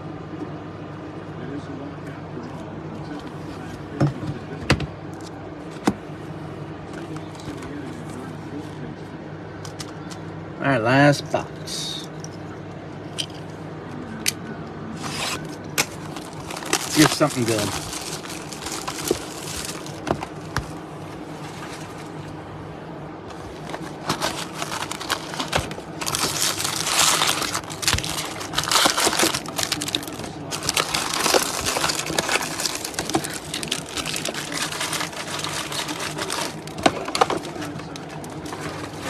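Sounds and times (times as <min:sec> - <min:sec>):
wrappers crinkling and tearing: 0:15.0 - 0:20.5, 0:23.3 - 0:39.0
cards rustling: 0:15.0 - 0:22.2, 0:23.3 - 0:39.0.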